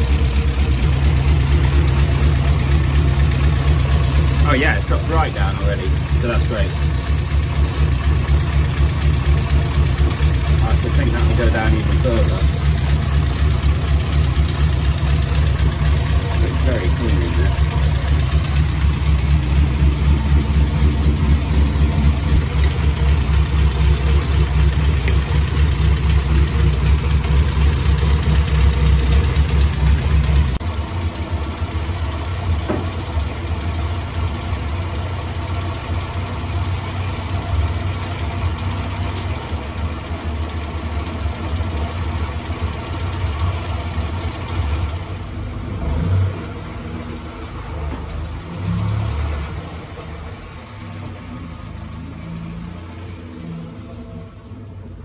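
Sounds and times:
car moving off: 0.0 - 31.5, 43.3 - 55.0
car engine idling: 0.0 - 55.0.

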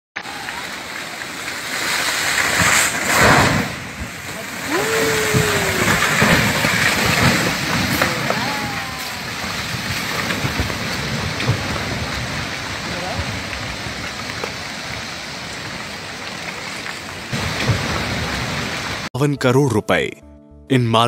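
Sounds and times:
floodwater roaring: 0.2 - 19.1
people calling out: 4.6 - 6.2, 7.9 - 9.5.

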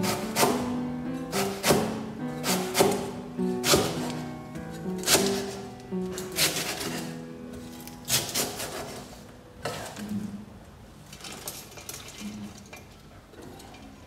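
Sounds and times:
quiet background music: 0.0 - 12.9.

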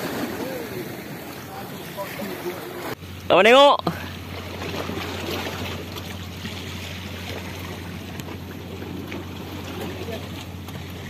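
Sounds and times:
sea waves on rocky shore: 0.0 - 11.0.

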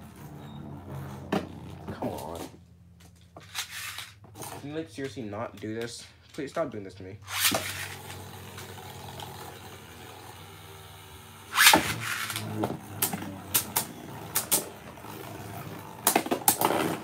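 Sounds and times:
spinning top landing with a scrape: 3.4 - 4.2, 7.2 - 8.8, 11.5 - 14.8
spinning top whirring: 3.4 - 4.2, 7.2 - 17.0
spinning tops clacking together: 3.4 - 4.2, 7.3 - 8.8, 11.5 - 14.7.

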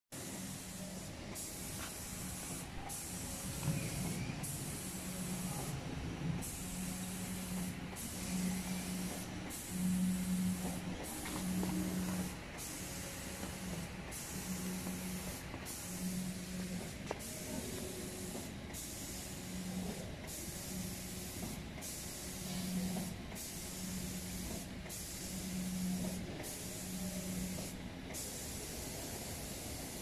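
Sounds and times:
spray gun hissing: 0.2 - 5.8, 6.4 - 30.0
low drive motor hum: 0.4 - 18.3.

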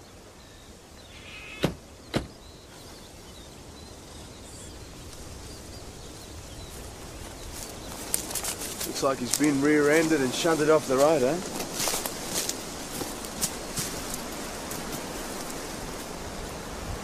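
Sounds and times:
birds chirping faintly: 0.0 - 17.0
short bird call: 1.1 - 2.3.

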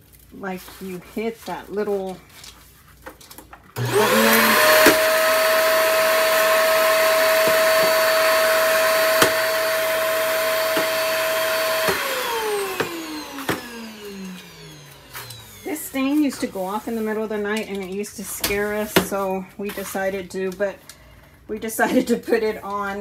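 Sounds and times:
vacuum motor whine: 3.8 - 16.7.

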